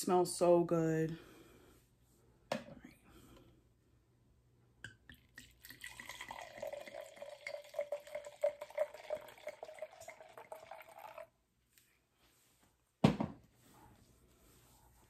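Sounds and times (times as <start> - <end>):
wine pouring into a glass: 5.1 - 11.4.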